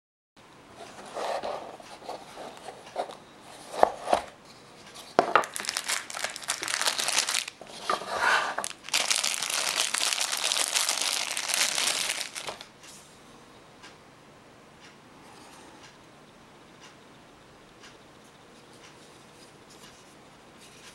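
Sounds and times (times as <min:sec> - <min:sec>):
plastic bag crinkling: 0:05.3 - 0:12.7.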